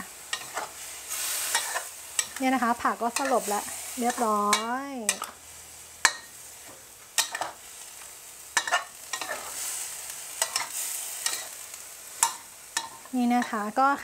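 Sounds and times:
faint sizzle: 0:00.0 - 0:14.0
metal spatula scraping a wok: 0:00.2 - 0:13.7.

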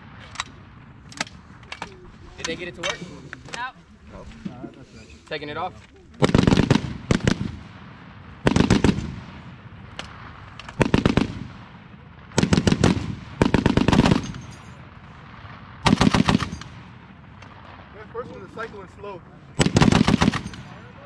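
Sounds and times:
heavy machine gun bursts: 0:19.6 - 0:20.8.

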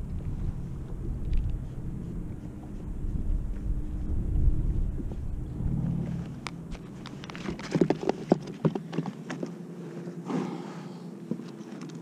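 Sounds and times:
wind rumbling on microphone: 0:00.0 - 0:08.2.

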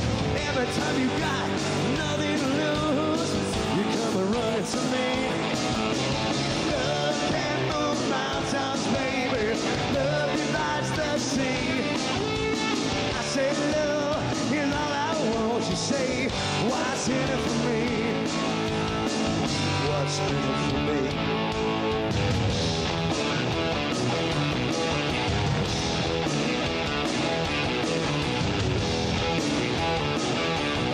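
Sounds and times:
distorted electric guitar: 0:00.0 - 0:30.9
drum kit pounding a beat: 0:00.0 - 0:30.9
person singing: 0:00.3 - 0:05.6, 0:06.5 - 0:18.6, 0:19.7 - 0:21.4.

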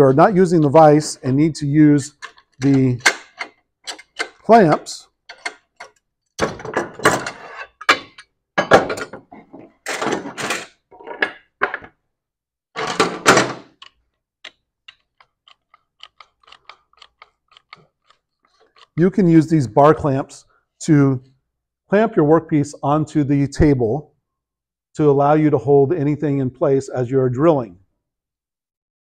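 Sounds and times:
metal tools and boards clattering: 0:02.1 - 0:04.5, 0:05.3 - 0:11.9.

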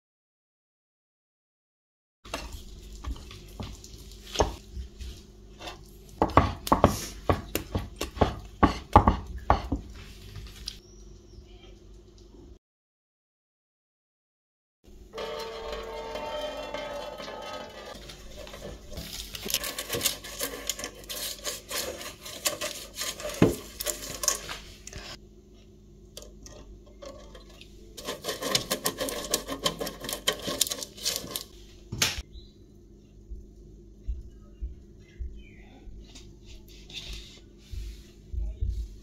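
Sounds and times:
baking paper crinkling: 0:09.9 - 0:10.8, 0:17.9 - 0:25.2, 0:28.0 - 0:31.7.

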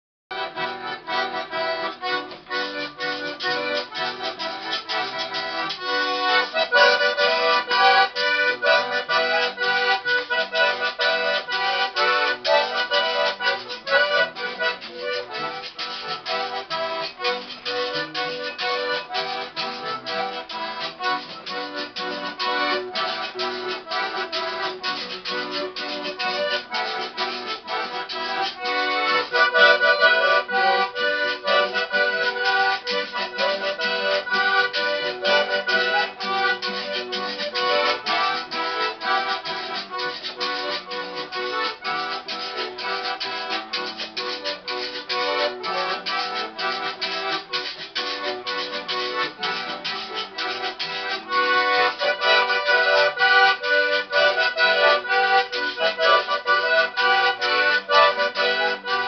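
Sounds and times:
bandoneon playing lively tune: 0:00.3 - 0:59.0
plucked guitar strings: 0:00.3 - 0:59.0.

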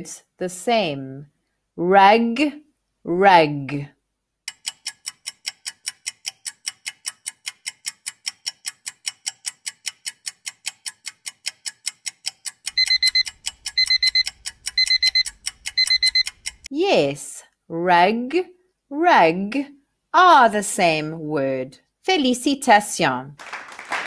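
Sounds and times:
clock ticking: 0:04.5 - 0:16.7
alarm clock beeping: 0:12.7 - 0:16.7.

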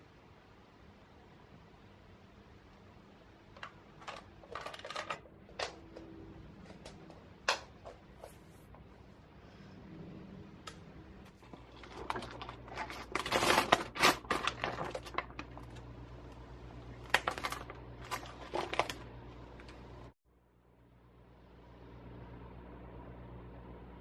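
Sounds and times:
steady low hum: 0:00.0 - 0:24.0
plastic bag crinkling: 0:03.6 - 0:05.8, 0:11.3 - 0:20.0.

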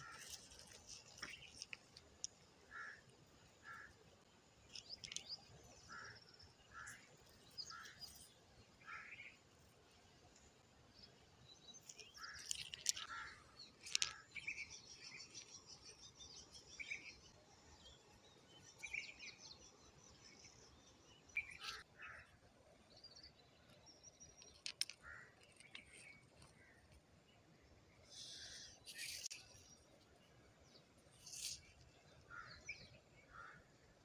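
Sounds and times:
pebbles clicking together: 0:00.0 - 0:02.6, 0:04.6 - 0:05.8, 0:11.7 - 0:15.6, 0:24.2 - 0:27.0
small birds chirping: 0:00.0 - 0:34.0.

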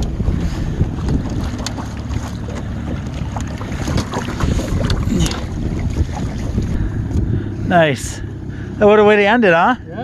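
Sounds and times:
wind buffeting microphone: 0:00.0 - 0:08.8
small boat rumbling: 0:00.0 - 0:10.0
water noise: 0:00.0 - 0:10.0.

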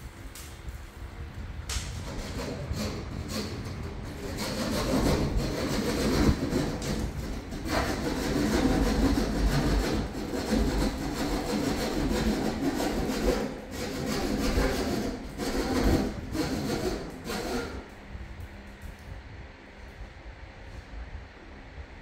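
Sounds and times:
hand saw rasping through board: 0:02.0 - 0:17.9.

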